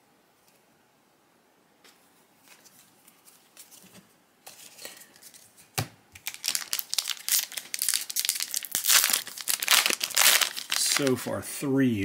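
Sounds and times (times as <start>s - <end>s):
foil wrapper crinkling: 6.2s - 11.3s.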